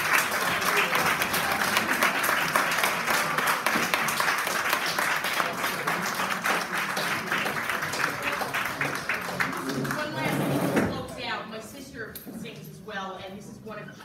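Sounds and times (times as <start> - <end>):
crowd applauding: 0.0 - 10.5.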